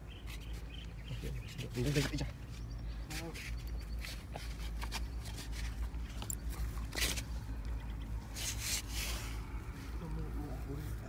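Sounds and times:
tool scraping dry earth: 8.2 - 10.0.

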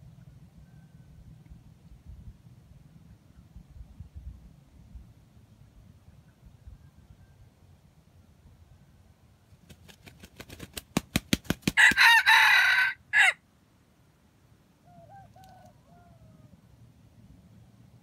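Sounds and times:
faint rooster crow: 0.4 - 1.6, 6.6 - 7.8, 11.8 - 13.4, 14.8 - 16.9
rooster wing clapping: 9.7 - 12.7
rooster crowing: 11.8 - 13.4, 14.8 - 16.6.

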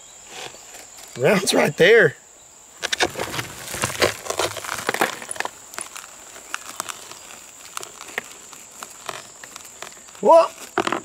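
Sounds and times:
broken glass clinking and crunching: 3.7 - 6.0.

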